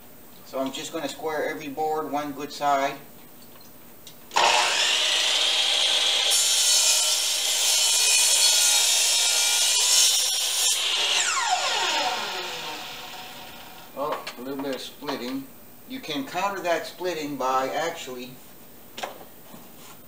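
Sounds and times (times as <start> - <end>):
miter saw cutting wood: 4.3 - 13.9.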